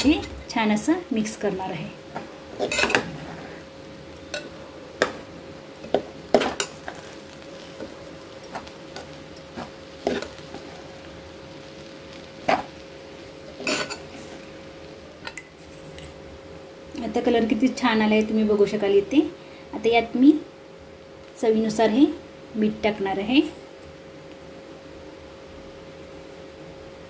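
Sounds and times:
spatula scraping a pan: 0:02.5 - 0:03.7, 0:08.5 - 0:10.8, 0:13.6 - 0:14.4.

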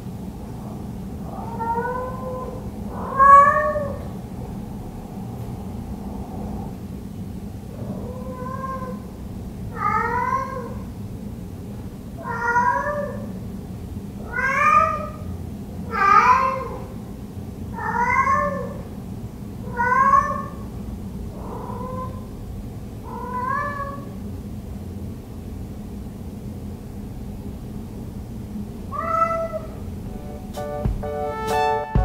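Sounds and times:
cat meowing: 0:01.3 - 0:04.1, 0:07.8 - 0:09.1, 0:09.7 - 0:10.8, 0:12.2 - 0:13.3, 0:14.2 - 0:15.2, 0:15.9 - 0:16.8, 0:17.8 - 0:18.8, 0:19.7 - 0:20.6, 0:21.4 - 0:22.3, 0:23.0 - 0:24.2, 0:28.9 - 0:29.8.

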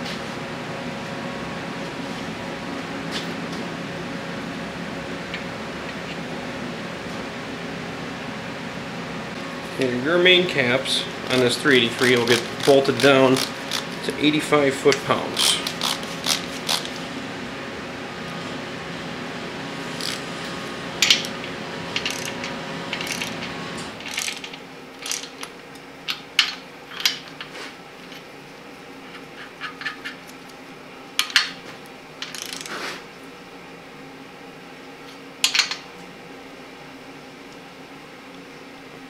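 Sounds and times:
torque wrench ratcheting: 0:11.3 - 0:14.0, 0:15.4 - 0:16.9, 0:20.0 - 0:20.2, 0:22.0 - 0:23.4, 0:24.0 - 0:25.3, 0:32.2 - 0:32.7.

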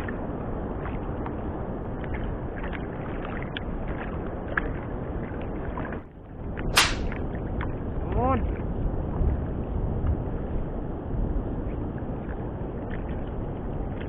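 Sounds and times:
water lapping against boat: 0:00.0 - 0:08.0, 0:11.5 - 0:14.0
wind: 0:00.0 - 0:14.0
water slap: 0:06.8 - 0:07.2.

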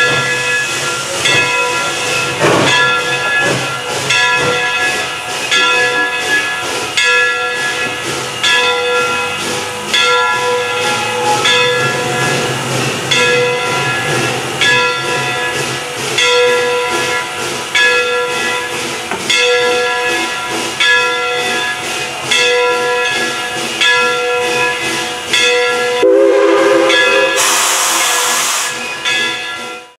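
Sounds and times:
steam hissing: 0:00.0 - 0:29.4
locomotive bell ringing: 0:00.0 - 0:30.0.

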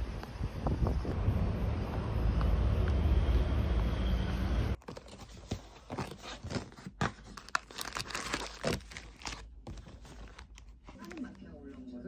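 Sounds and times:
cardboard box rustling: 0:04.8 - 0:11.3
plastic wrappers crinkling: 0:04.8 - 0:11.8.

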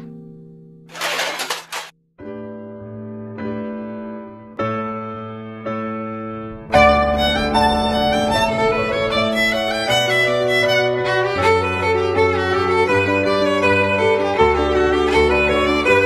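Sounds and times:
low held accompaniment notes: 0:06.0 - 0:16.0
violin slow melody: 0:06.7 - 0:16.0.

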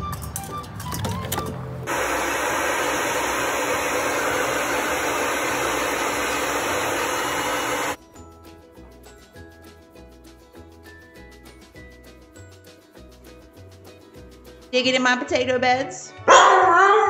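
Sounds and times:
hair dryer blowing: 0:01.9 - 0:08.0
background music: 0:08.0 - 0:17.0.

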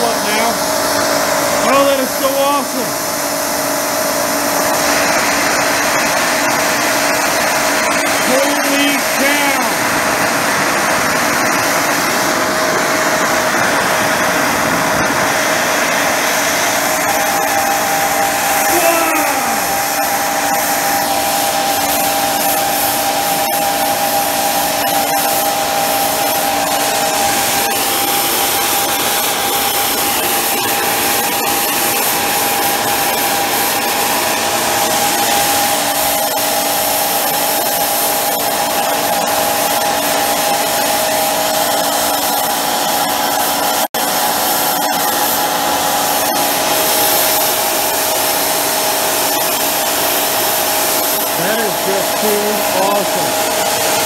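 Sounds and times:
jet burner roaring: 0:00.0 - 0:54.0
steady tone: 0:12.3 - 0:28.2.

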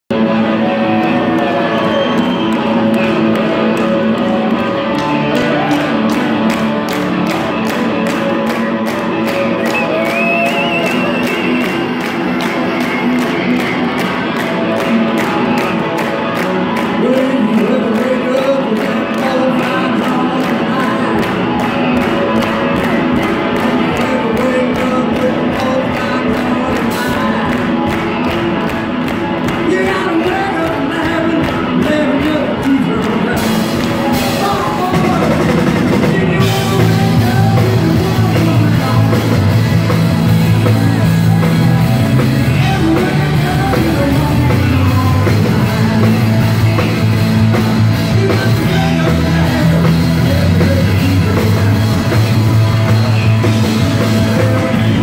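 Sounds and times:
bass guitar: 0:00.0 - 0:55.0
drum kit beat: 0:00.1 - 0:55.0
electric guitar: 0:00.1 - 0:55.0.

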